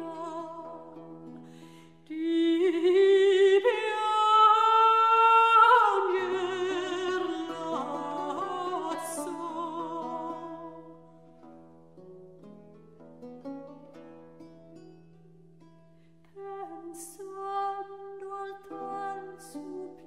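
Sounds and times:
person singing with vibrato: 0.0 - 1.0, 2.0 - 10.9, 16.4 - 20.0.

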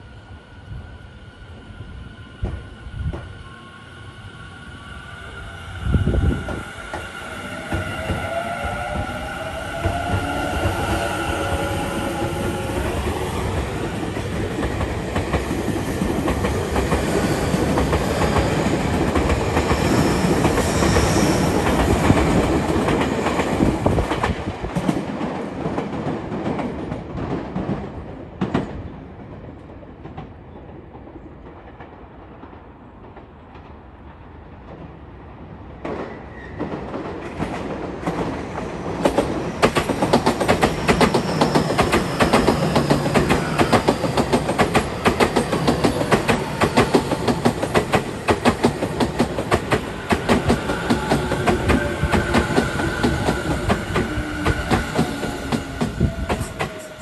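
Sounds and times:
train wheels clacking on rails: 35.8 - 57.0.

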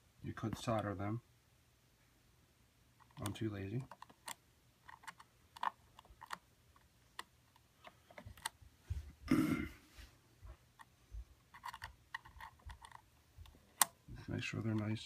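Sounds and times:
fingers twisting wires clicking: 3.0 - 8.6, 10.8 - 14.0.

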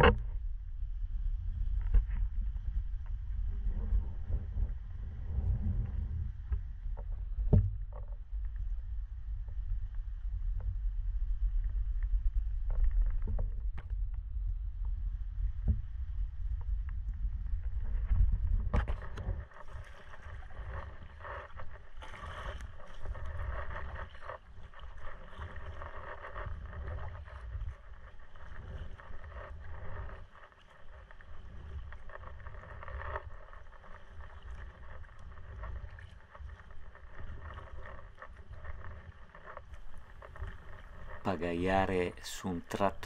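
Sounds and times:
low wind rumble on microphone: 0.0 - 43.0
water washing along hull: 1.4 - 43.0
kayak paddle splashing: 18.4 - 42.7.

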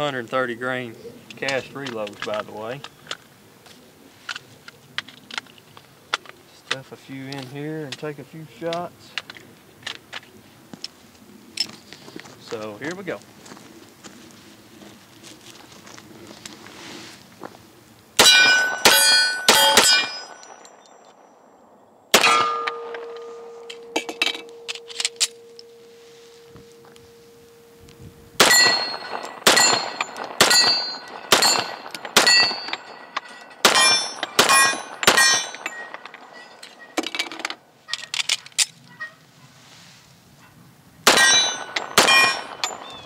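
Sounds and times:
pistol shots: 18.2 - 21.0, 22.1 - 23.9, 28.4 - 36.4, 41.1 - 43.0
steel target clanging: 18.2 - 21.2, 22.2 - 27.8, 28.4 - 37.1, 41.1 - 43.0.

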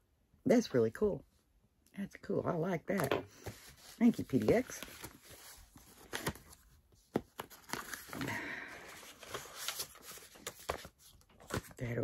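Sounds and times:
paper rustling: 3.4 - 12.0.

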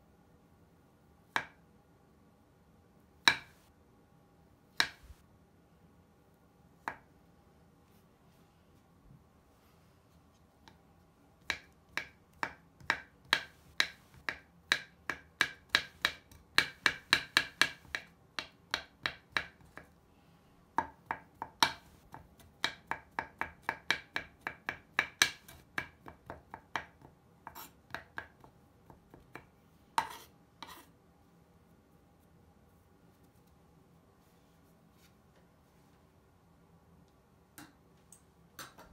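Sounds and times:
knife chopping on wooden board: 3.2 - 3.6, 11.4 - 19.9.

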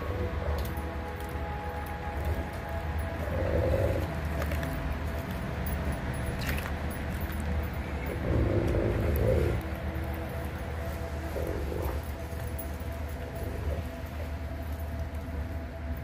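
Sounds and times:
dog growling low: 3.2 - 4.2, 8.1 - 9.6, 11.3 - 12.1.

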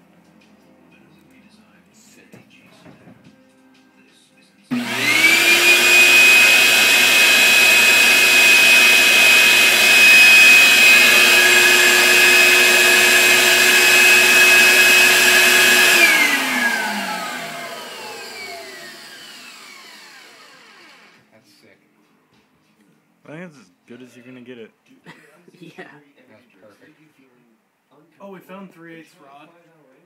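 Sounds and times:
vacuum cleaner motor whining: 4.7 - 21.2.

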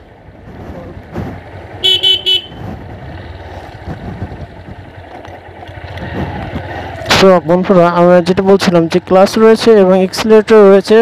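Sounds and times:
motorcycle engine running: 0.1 - 10.9
horn tooting: 1.8 - 2.7.

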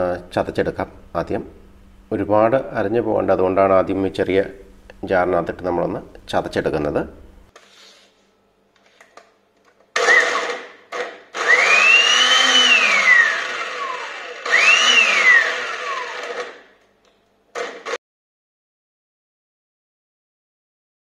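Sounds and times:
mixer grinder motor whine: 10.0 - 16.7.

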